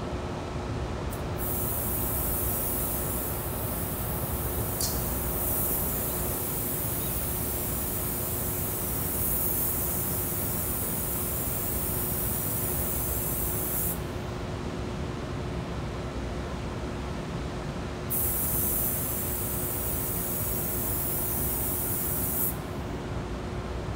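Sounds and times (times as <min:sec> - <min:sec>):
steady hum: 0:00.0 - 0:23.9
spray guns hissing: 0:01.4 - 0:14.0, 0:18.1 - 0:22.6.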